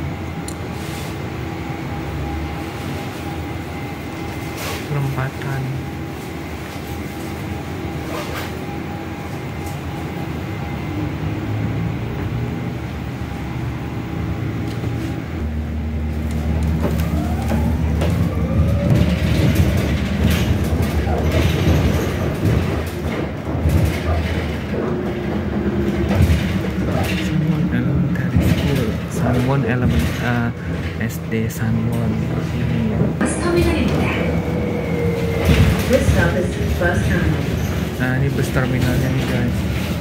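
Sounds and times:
bus engine hum: 0:00.0 - 0:40.0
rattles and clicks: 0:16.2 - 0:33.2.

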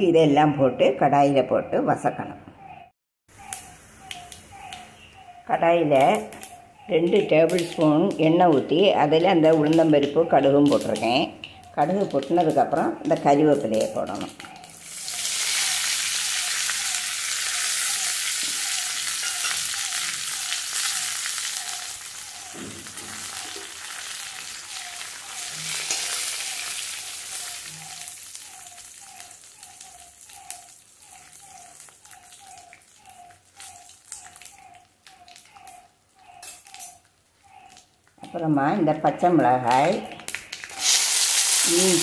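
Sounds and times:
faint regular chirp: 0:02.6 - 0:05.6
spices sizzling in hot oil: 0:11.9 - 0:37.8, 0:40.2 - 0:42.0
spatula stirring and clicking on pan: 0:16.7 - 0:38.4.

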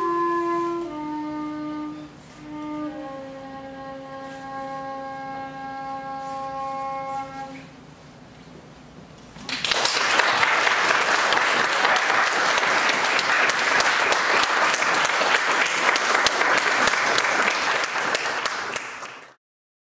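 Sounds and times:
audience applauding: 0:09.4 - 0:19.4.

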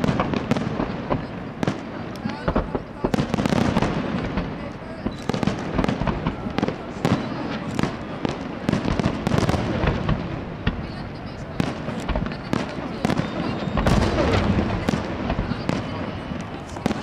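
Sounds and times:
fireworks bursting and crackling: 0:00.0 - 0:17.0.

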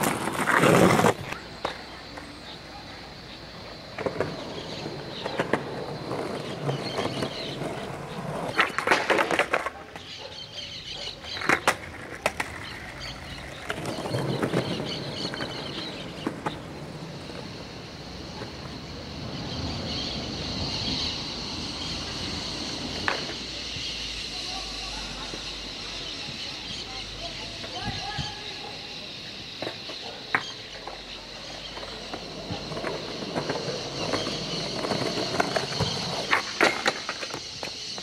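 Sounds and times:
skateboard clacks: 0:00.0 - 0:02.4, 0:03.6 - 0:10.3, 0:11.1 - 0:20.9, 0:22.0 - 0:23.8, 0:29.5 - 0:38.0
skateboard wheels rolling on concrete: 0:00.0 - 0:38.0.

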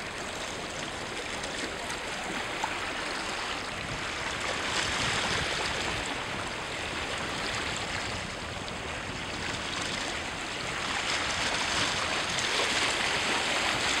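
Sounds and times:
sea water sloshing: 0:00.0 - 0:14.0
wind on microphone: 0:03.3 - 0:14.0.

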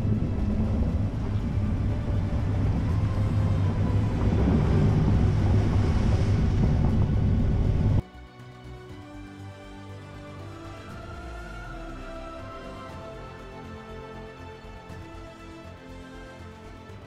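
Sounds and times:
car engine and tyre rumble: 0:00.0 - 0:08.0
water splashing and rushing: 0:00.0 - 0:08.0.

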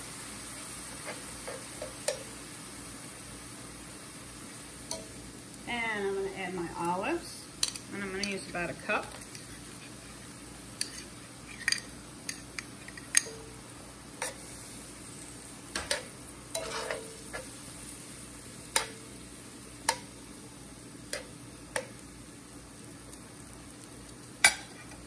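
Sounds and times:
faint sizzle of simmering food: 0:00.0 - 0:25.0
metal tongs clinking on iron skillet: 0:00.9 - 0:02.3, 0:04.8 - 0:05.2, 0:07.6 - 0:09.5, 0:10.8 - 0:13.6, 0:14.2 - 0:14.5, 0:15.8 - 0:17.6, 0:18.6 - 0:19.2, 0:19.8 - 0:20.2, 0:21.0 - 0:22.0, 0:24.4 - 0:25.0.

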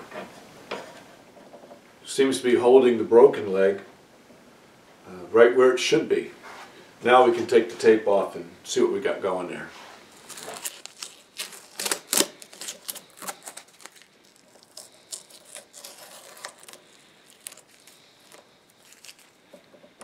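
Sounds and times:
tape peeling crackle: 0:10.1 - 0:19.7.

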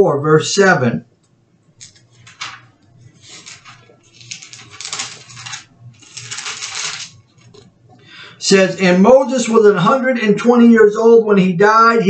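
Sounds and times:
thin pages rustling: 0:01.8 - 0:07.7.

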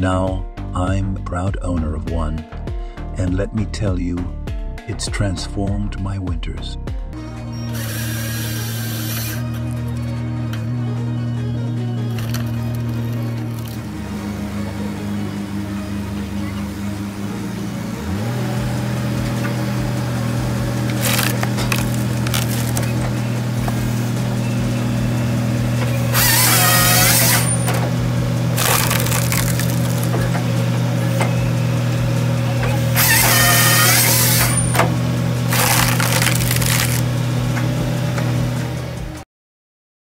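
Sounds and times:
excavator engine running: 0:07.1 - 0:39.2
saw bar cutting logs: 0:07.7 - 0:09.9, 0:20.8 - 0:23.9, 0:25.8 - 0:31.3, 0:32.6 - 0:37.7
wood noise bursts: 0:20.8 - 0:23.9, 0:25.9 - 0:30.5, 0:32.7 - 0:37.1.

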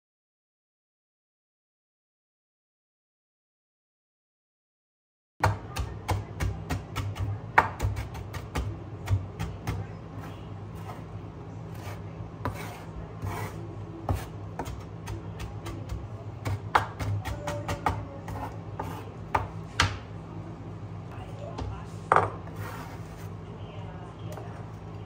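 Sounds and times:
knife chopping on wooden board: 0:05.4 - 0:09.8, 0:11.8 - 0:20.0.

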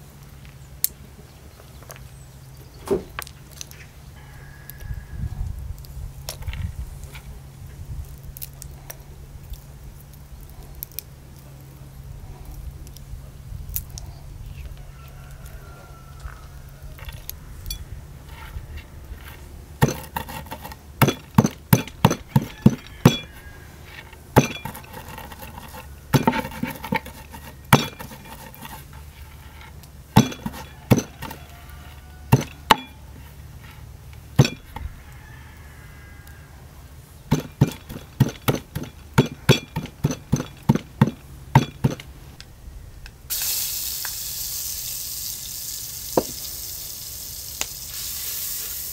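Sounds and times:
stone crushing walnuts in clay bowl: 0:19.2 - 0:33.1, 0:34.2 - 0:34.9, 0:37.3 - 0:42.1.

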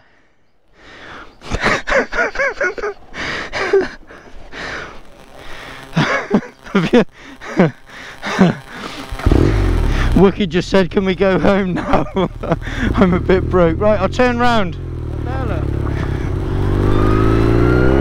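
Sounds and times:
man laughing hard: 0:01.4 - 0:04.9, 0:05.9 - 0:10.2, 0:11.2 - 0:13.5, 0:15.5 - 0:16.5
man gasping for breath: 0:12.6 - 0:13.0.

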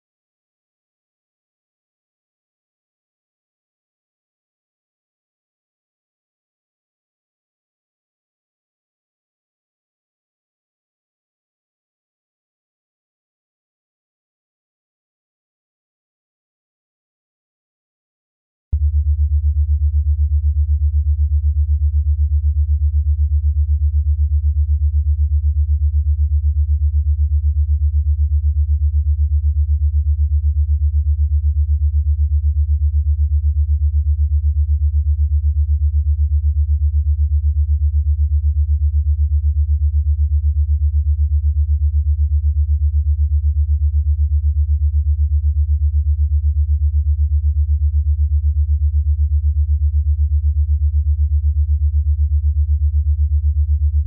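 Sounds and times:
pulsing electronic sine tone: 0:18.8 - 0:54.0.

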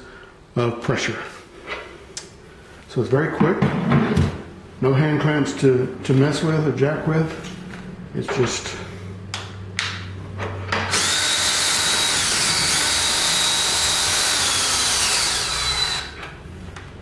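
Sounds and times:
cordless drill motor whine: 0:10.9 - 0:16.2.

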